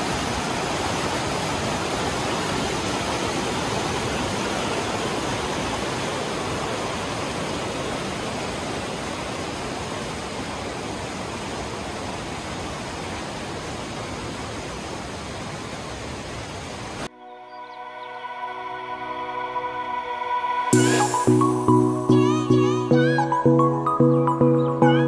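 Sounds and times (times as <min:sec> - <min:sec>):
creek water rushing: 0:00.0 - 0:17.1.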